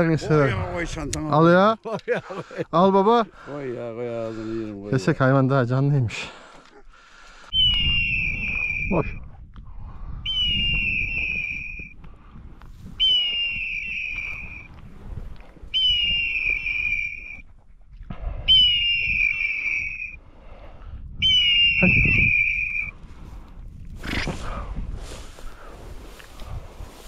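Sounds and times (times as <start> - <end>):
shrill whistle blasts: 7.5 - 9.2, 10.3 - 11.9, 13.0 - 14.7, 15.7 - 17.4, 18.5 - 20.2, 21.2 - 23.0.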